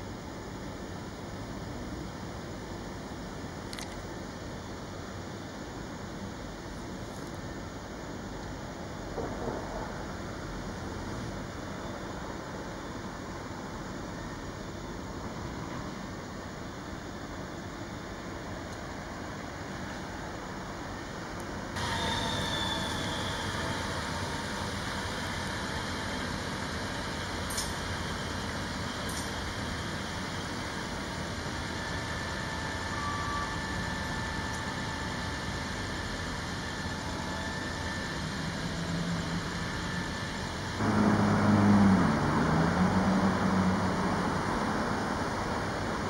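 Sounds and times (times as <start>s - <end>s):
diesel truck engine running: 40.8s - 46.0s.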